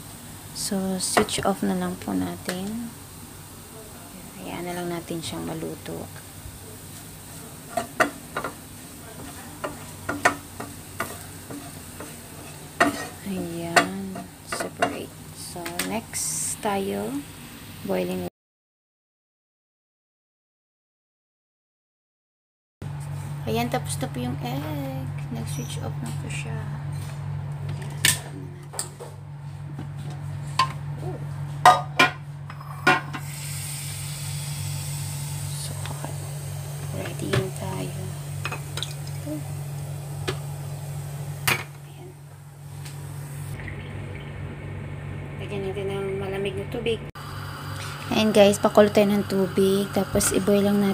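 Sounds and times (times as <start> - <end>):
steady low hum: 0.0 - 18.3, 22.8 - 50.9
garlic sizzling in oil: 4.3 - 18.0, 33.2 - 41.6, 47.2 - 50.9
wooden spatula scraping a pan: 9.2 - 13.3.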